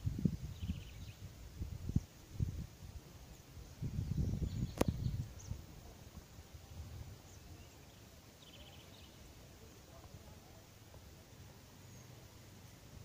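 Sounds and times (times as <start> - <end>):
birds chirping and trilling: 3.3 - 5.7
low microphone rumble: 3.6 - 6.0.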